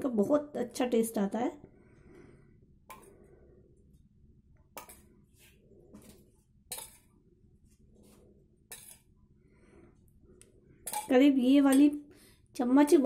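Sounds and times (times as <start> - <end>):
spoon clinking on steel bowl: 6.7 - 7.0, 10.8 - 12.0.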